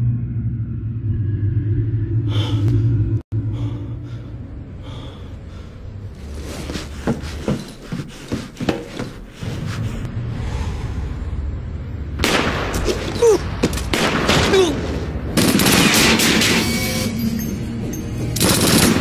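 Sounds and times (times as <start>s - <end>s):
low rumbling drone: 0.0s - 7.4s, 9.3s - 16.2s.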